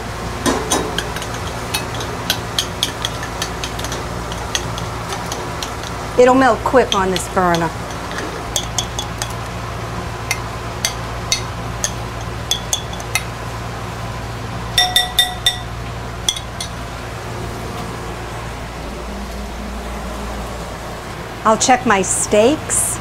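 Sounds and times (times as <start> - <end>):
steady low hum: 0.0 - 23.0
metal spoon clinking on pot: 0.7 - 6.0, 6.7 - 9.5, 10.3 - 13.4, 14.8 - 15.7, 16.3 - 16.8.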